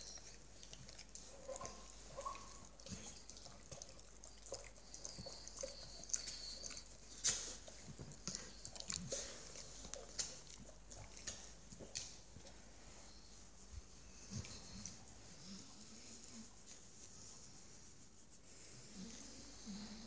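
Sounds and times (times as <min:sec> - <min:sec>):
dog lips wet smacking: 0:00.0 - 0:12.6.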